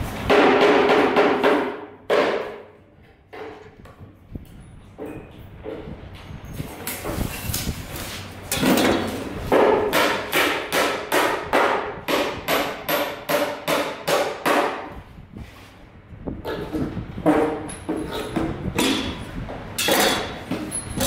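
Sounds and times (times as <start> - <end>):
hammering with ringing: 9.6 - 14.9.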